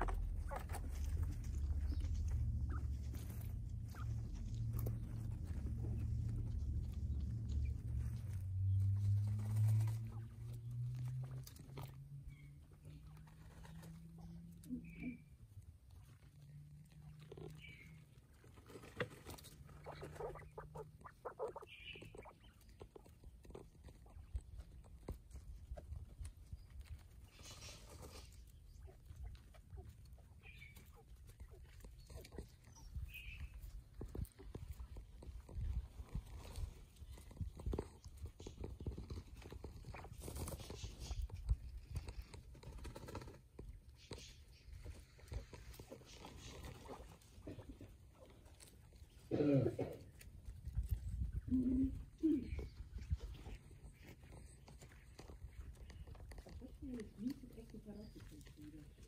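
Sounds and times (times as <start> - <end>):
low rumble: 0.0 - 13.2
quails scratching in dry soil: 0.0 - 59.0
soft high bird calls: 19.8 - 22.8.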